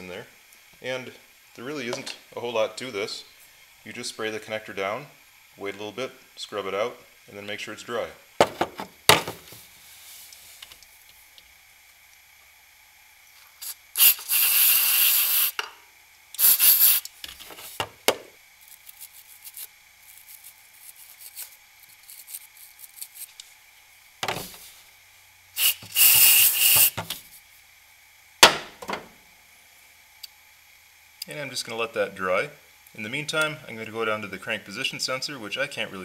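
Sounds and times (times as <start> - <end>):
aerosol spray hissing: 13.6 - 15.6, 16.4 - 17.8, 25.6 - 27.3
brush scrubbing: 18.6 - 23.4.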